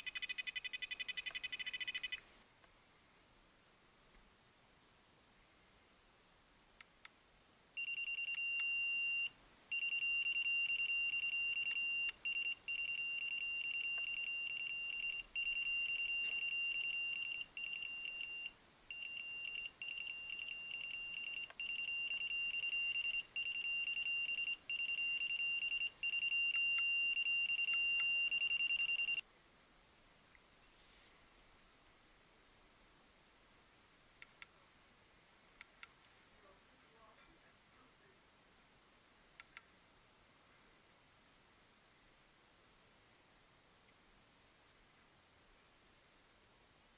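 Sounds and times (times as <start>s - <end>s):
rapid high-pitched beeping: 0.0s - 2.2s
faint clicks: 39.4s - 39.7s.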